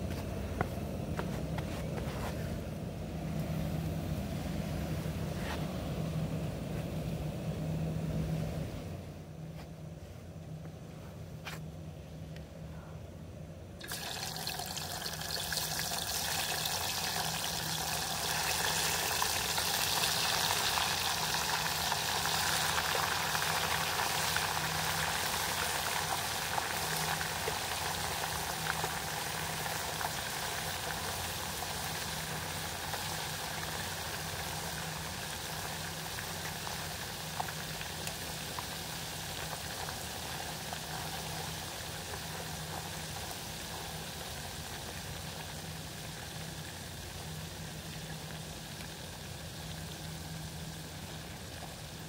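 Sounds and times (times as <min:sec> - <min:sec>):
fish sizzling in hot oil: 0:13.8 - 0:52.0.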